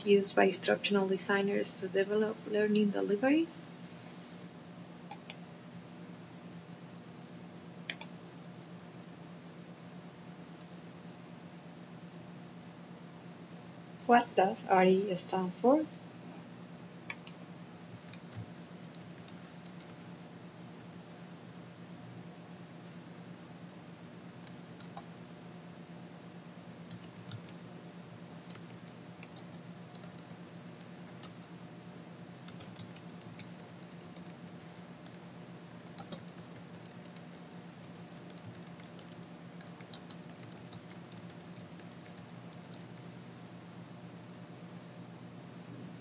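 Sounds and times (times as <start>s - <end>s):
faint low hum: 0.0s - 46.0s
keyboard key clicks: 35.8s - 39.2s.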